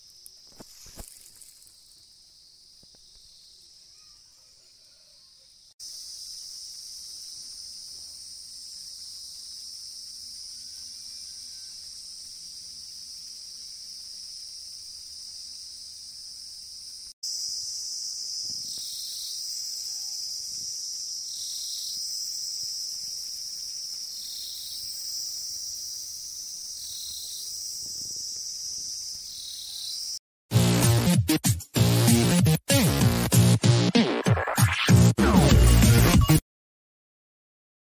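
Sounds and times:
crickets chirping: 0.0 - 30.2.

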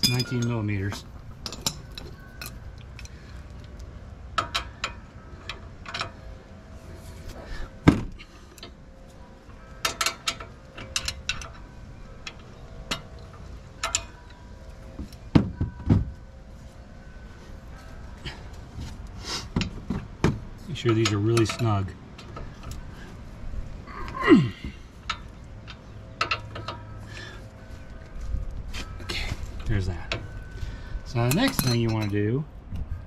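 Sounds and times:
metal tools clinking on bolts: 0.0 - 3.8, 4.4 - 6.2, 9.7 - 15.9, 19.6 - 23.1, 23.9 - 32.5.

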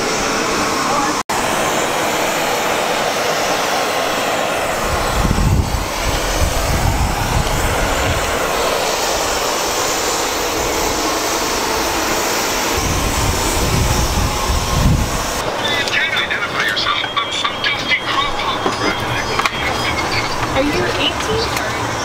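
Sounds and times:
aircraft engines rushing: 0.0 - 22.0
wind rumble on microphone: 4.7 - 9.4, 10.4 - 15.4.

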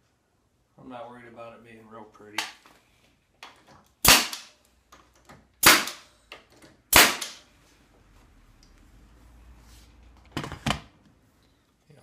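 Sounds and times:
nail gun firing: 4.0 - 4.6, 5.6 - 6.1, 6.9 - 7.4.

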